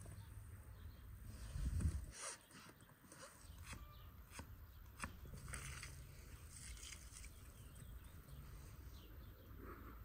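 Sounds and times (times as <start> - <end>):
knife slicing onion on wood: 2.1 - 6.0.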